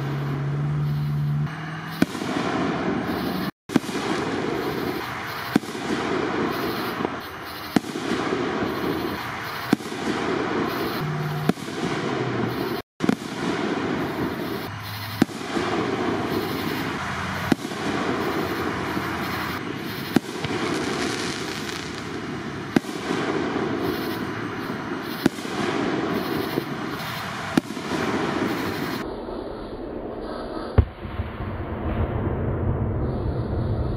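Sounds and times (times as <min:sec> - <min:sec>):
firework shells bursting: 0:01.8 - 0:29.0.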